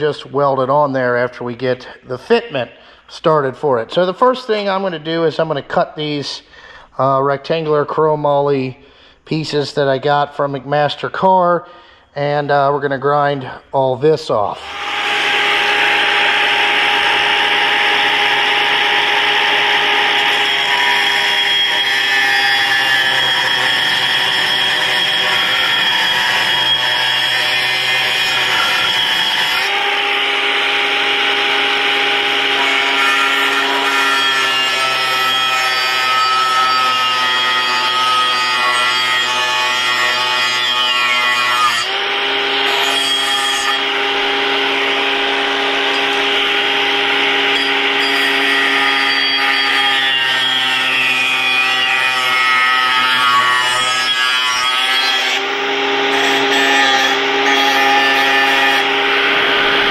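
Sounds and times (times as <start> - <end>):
angle grinder whine: 14.5 - 59.9
grinding disc scraping metal: 14.6 - 38.7, 42.0 - 54.2.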